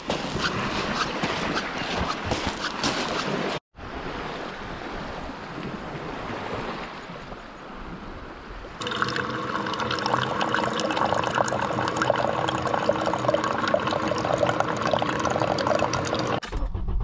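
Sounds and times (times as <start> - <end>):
coffee pouring into a mug: 8.8 - 16.3.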